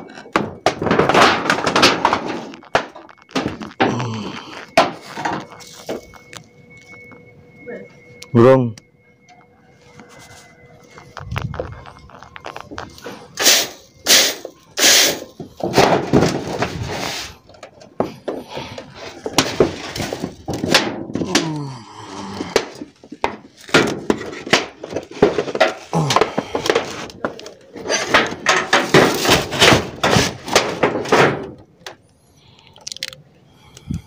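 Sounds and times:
clay roof tiles clattering: 0.0s - 6.8s, 10.9s - 32.0s
metal sheet scraping: 11.2s - 17.4s.

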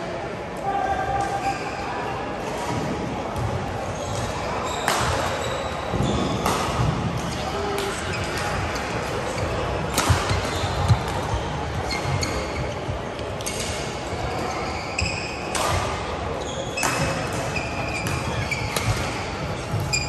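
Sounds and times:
shoes squeaking on court: 8.1s - 15.6s, 16.4s - 20.0s
racket striking shuttlecock: 9.9s - 11.2s.

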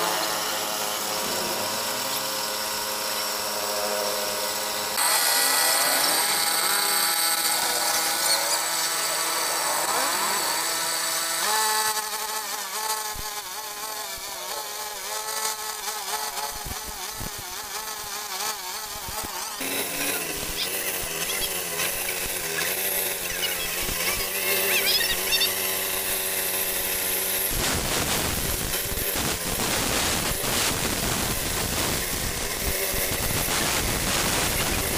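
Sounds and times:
concrete saw buzzing whine: 0.0s - 34.9s.

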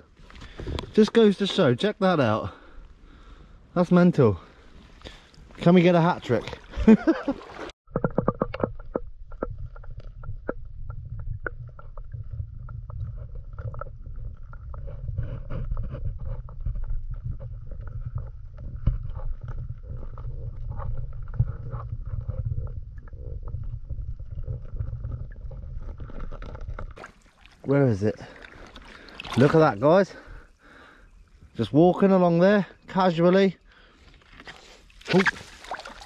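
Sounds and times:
muffled underwater rumble: 7.9s - 27.0s
small underwater clicks and crackles: 7.9s - 27.6s.

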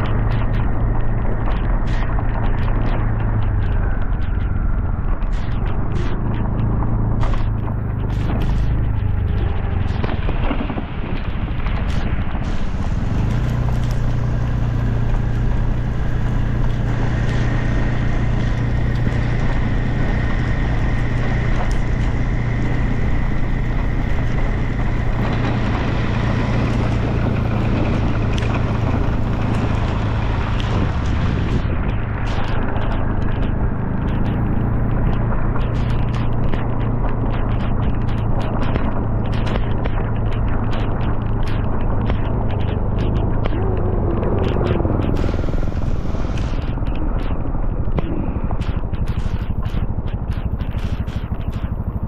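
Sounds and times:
motorcycle engine running: 0.0s - 52.0s
wind buffeting microphone: 0.0s - 52.0s
rain: 7.1s - 37.2s, 44.8s - 47.0s.

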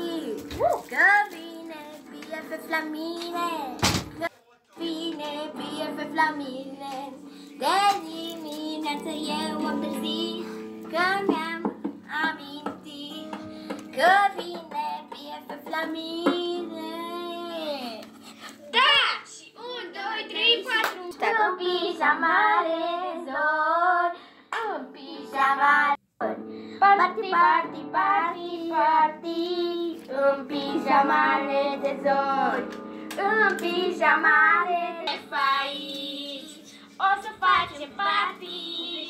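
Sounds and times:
girl singing pop song: 0.0s - 39.0s.

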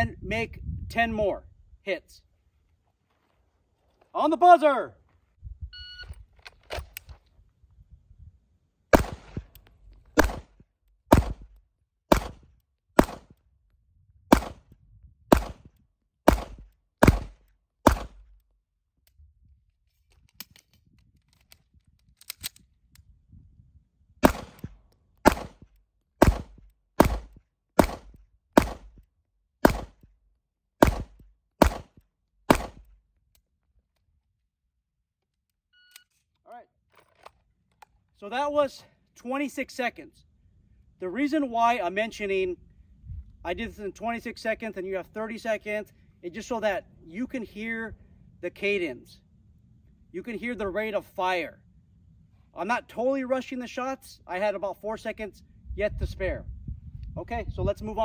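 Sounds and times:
handgun shots: 8.9s - 9.6s, 10.2s - 11.5s, 12.1s - 13.4s, 14.3s - 14.7s, 15.3s - 15.7s, 16.3s - 18.2s, 24.2s - 25.6s, 26.2s - 29.0s, 29.6s - 30.0s, 30.8s - 32.9s.

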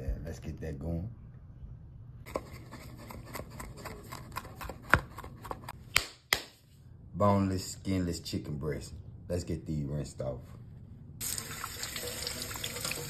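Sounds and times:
knife chopping on wooden board: 2.3s - 6.4s.

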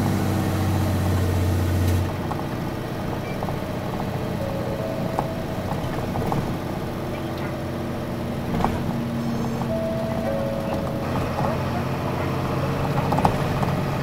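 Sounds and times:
bus diesel engine droning: 0.0s - 14.0s
faint tones: 3.8s - 7.7s, 9.2s - 12.7s.

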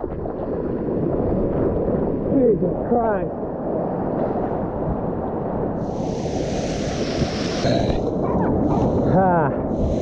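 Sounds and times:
splashing hiss: 5.8s - 10.0s.

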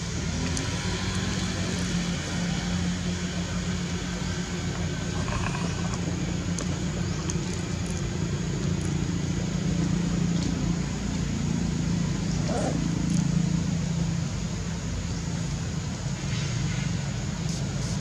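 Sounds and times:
engine droning: 0.0s - 18.0s.

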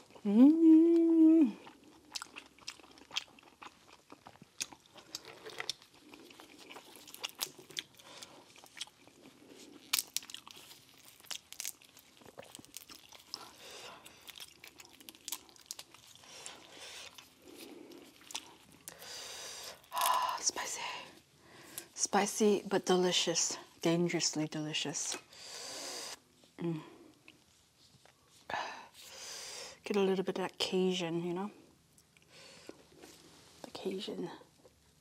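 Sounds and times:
person humming mmm: 0.0s - 1.7s
chewing and wet mouth sounds: 0.0s - 20.4s, 27.0s - 28.4s
crawfish shells cracking: 9.8s - 13.5s.

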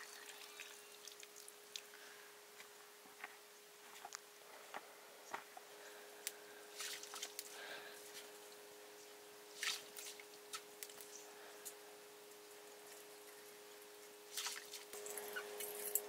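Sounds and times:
water drips and wet squishing: 0.0s - 1.9s, 6.7s - 8.2s, 9.6s - 11.1s, 14.3s - 15.0s
faint steady hum: 0.0s - 16.0s.

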